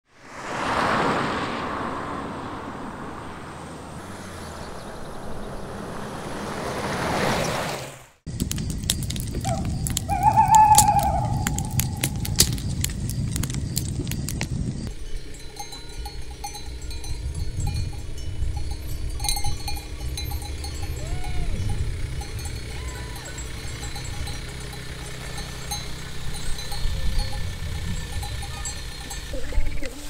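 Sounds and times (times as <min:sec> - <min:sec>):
low rumble: 0:08.3 - 0:29.8
livestock bells clinking: 0:08.3 - 0:30.0.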